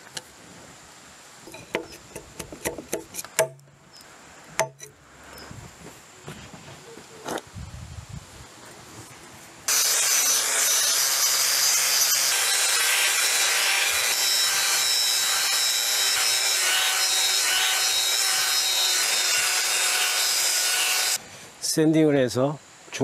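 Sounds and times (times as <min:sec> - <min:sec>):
power sander whining on wood: 0:09.7 - 0:21.2.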